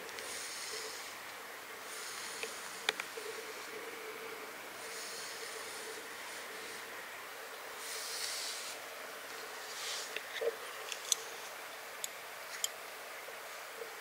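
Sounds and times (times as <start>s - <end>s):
scratchy brushing of cat fur: 9.6s - 10.2s.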